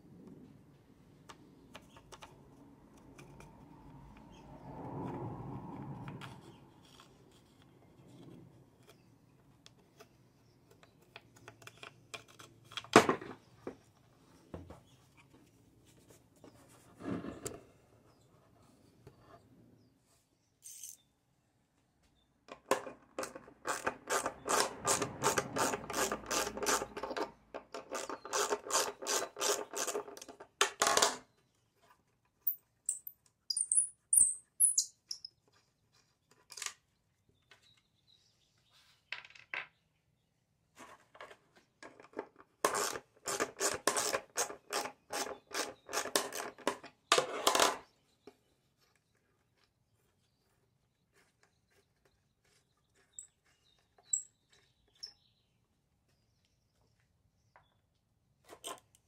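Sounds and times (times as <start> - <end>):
clicks and light scrapes: 1.2 - 4.4.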